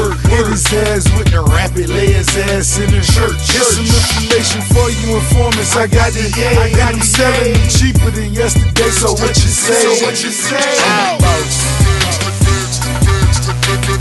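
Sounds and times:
rapping over heavy beat: 0.0 - 14.0.

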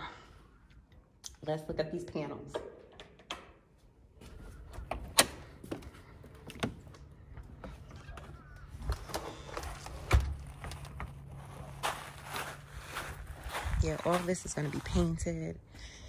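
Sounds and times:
footsteps: 8.9 - 15.4
low steady rumble: 9.5 - 16.0.

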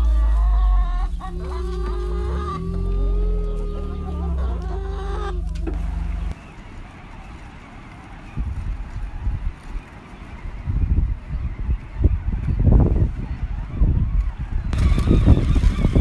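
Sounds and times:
low rumble: 0.0 - 6.5
hens clucking and calling: 0.0 - 16.0
wind gusts: 0.0 - 16.0.

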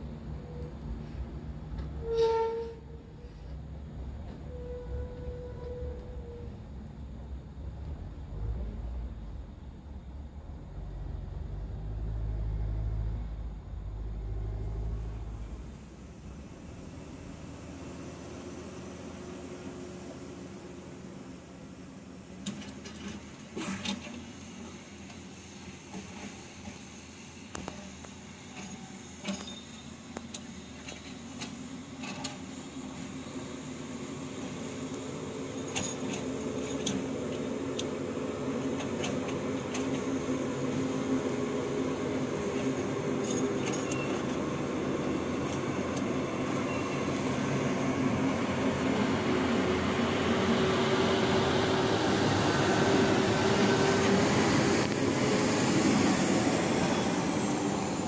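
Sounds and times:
thin high squeal: 2.0 - 3.4, 28.5 - 30.0, 43.2 - 44.4, 46.2 - 47.4
truck diesel engine: 6.0 - 22.3, 33.7 - 58.0.

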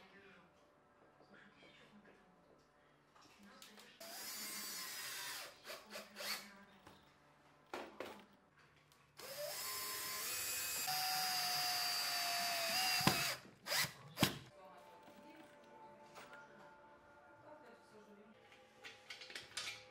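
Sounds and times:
cordless drill whining: 4.0 - 6.4, 9.2 - 14.0.

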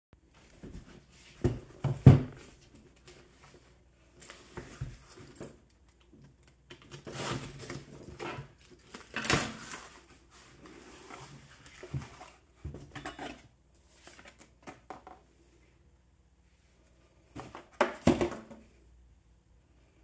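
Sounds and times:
tape and cardboard tearing: 6.8 - 8.0.

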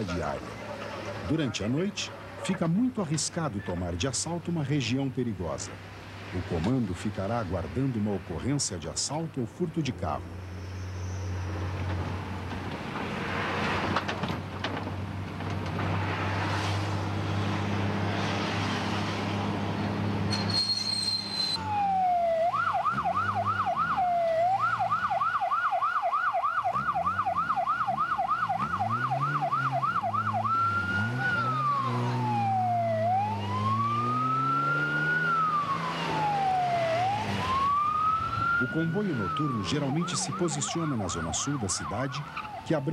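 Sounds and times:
car engine and road noise: 0.0 - 42.9
police siren: 21.3 - 42.9.

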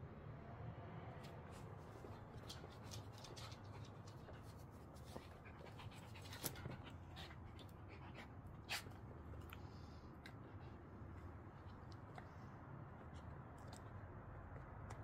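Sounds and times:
small dogs panting: 2.0 - 10.9.

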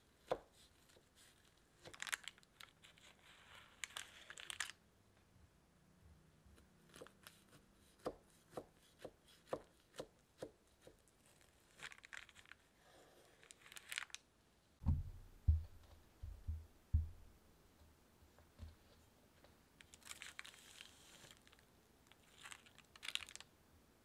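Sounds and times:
low thuds: 14.8 - 17.4.

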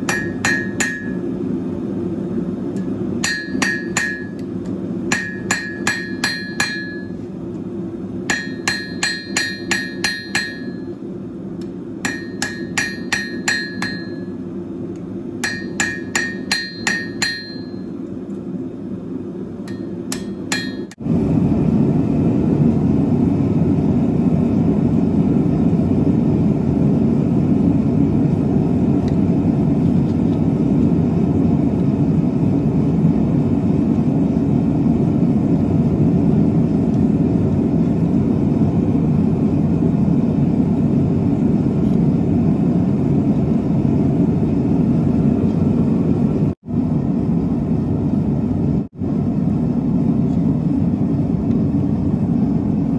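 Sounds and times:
hammer ringing on anvil: 0.0 - 1.3, 2.8 - 4.5, 5.1 - 7.2, 8.3 - 11.0, 12.0 - 14.4, 15.4 - 18.0, 19.6 - 21.0
forge burner roaring: 0.0 - 52.9.

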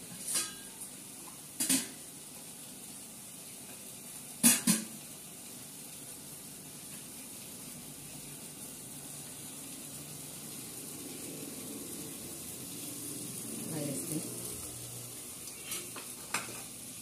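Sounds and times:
pot hissing on gas burner: 0.0 - 17.0.

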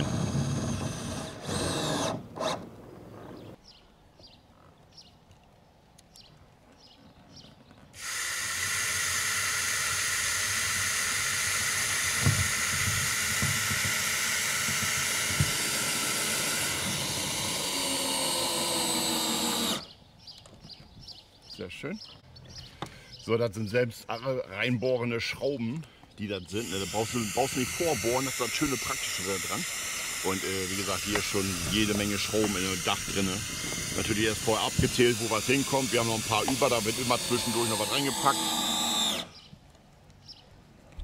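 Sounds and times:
cordless drill driving screw: 0.0 - 2.7, 8.0 - 19.9, 26.5 - 39.5.

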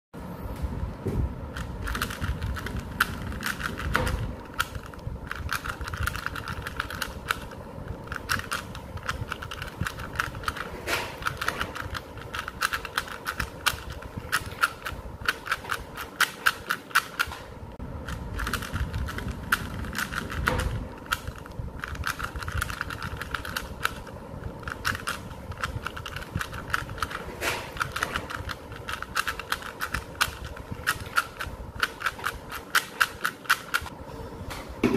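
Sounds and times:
puzzle cube clicking: 1.5 - 17.4, 18.0 - 33.9.

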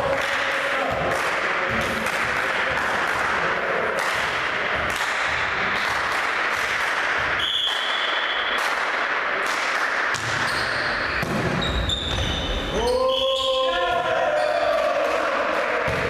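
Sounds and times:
sharp claps and knocks: 0.0 - 11.6
crowd noise: 0.0 - 16.0
referee's whistle: 7.4 - 8.6, 10.5 - 13.8.

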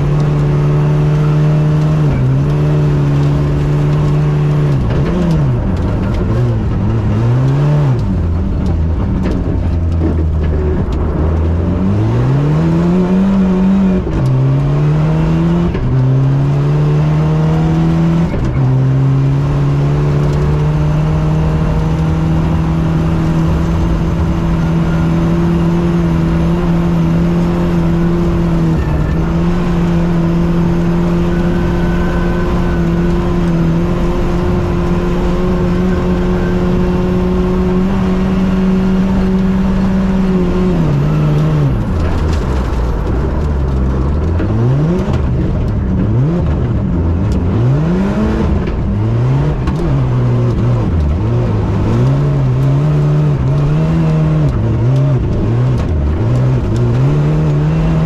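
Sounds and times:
rally car engine revving: 0.0 - 58.0.

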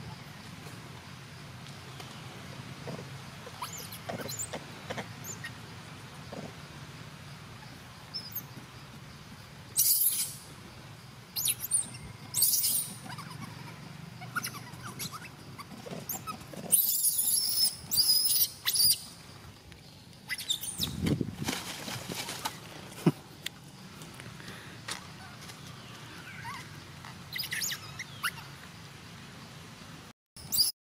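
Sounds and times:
baby monkey squeaking: 3.5 - 4.5, 5.2 - 5.5, 9.8 - 10.4, 11.4 - 19.1, 20.3 - 21.0, 26.2 - 26.7, 27.3 - 28.5, 30.4 - 30.7.

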